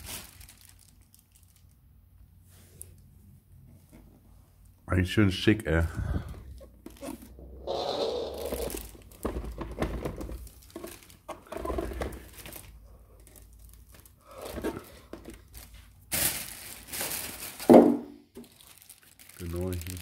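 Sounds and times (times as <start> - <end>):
plastic film crinkling: 0.0 - 1.9, 6.9 - 20.0.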